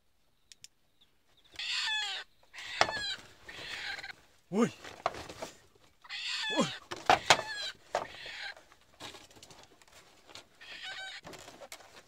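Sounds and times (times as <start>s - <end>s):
chickens squawking in alarm: 1.6s - 4.2s, 6.0s - 8.7s, 10.6s - 11.3s.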